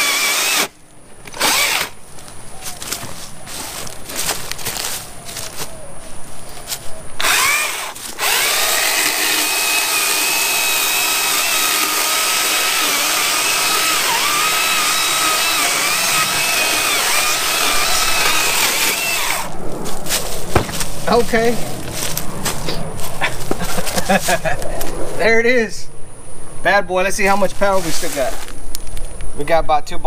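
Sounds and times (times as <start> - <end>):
electric chainsaw cutting wood: 0.0 - 2.0, 7.2 - 19.6.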